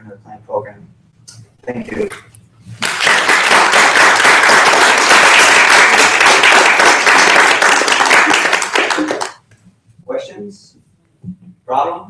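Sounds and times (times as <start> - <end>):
audience applauding: 2.8 - 9.4.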